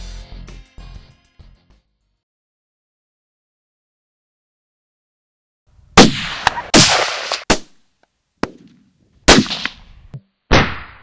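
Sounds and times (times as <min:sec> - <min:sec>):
loud gunshots: 0:06.0 - 0:07.7, 0:09.3 - 0:09.8.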